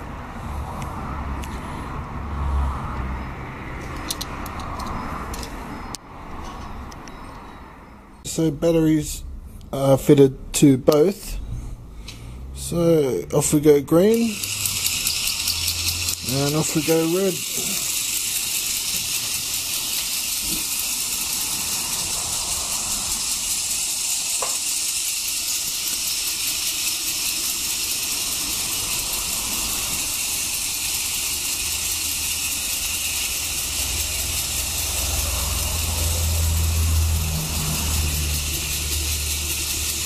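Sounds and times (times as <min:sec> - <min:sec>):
clickers ticking rapidly: 0:14.0 - 0:40.0
toy train motors whirring: 0:14.0 - 0:40.0.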